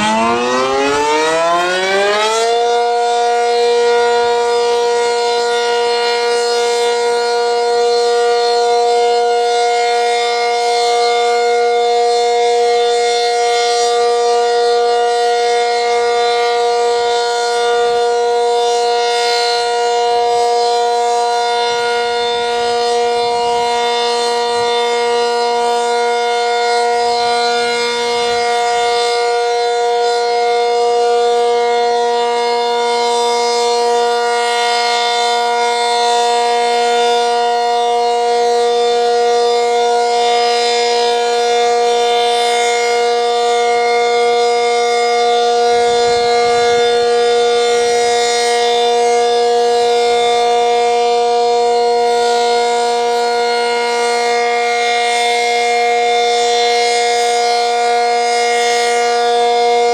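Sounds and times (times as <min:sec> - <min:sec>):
warning siren winding up: 0:00.0 - 0:59.9.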